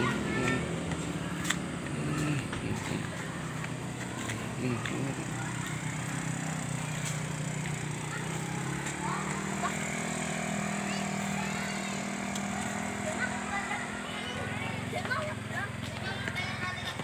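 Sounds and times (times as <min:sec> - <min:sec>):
small engine running: 0:00.0 - 0:17.0.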